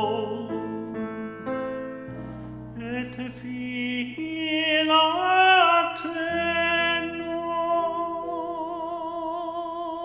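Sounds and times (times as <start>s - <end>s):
man singing a prayer chant: 0.0s - 0.6s, 2.8s - 10.0s.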